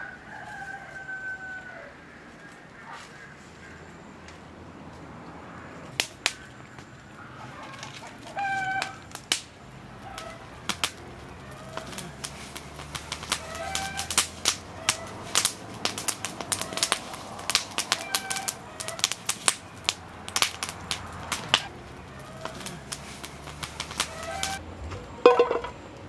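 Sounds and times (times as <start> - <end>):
birds calling: 1.4 - 24.6
wood fire crackling and popping: 5.5 - 24.6.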